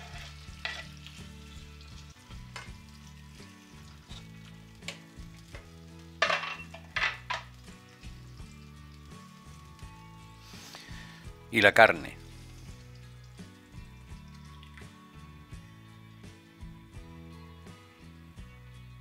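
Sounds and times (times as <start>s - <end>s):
utensil scraping pan: 0.0s - 1.0s
food sizzling in a frying pan: 0.0s - 11.5s, 12.2s - 18.7s.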